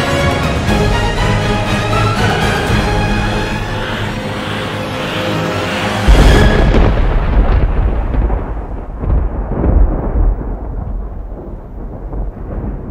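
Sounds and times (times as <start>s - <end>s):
low rumble: 0.5s - 12.9s
deep boom: 5.9s - 12.9s.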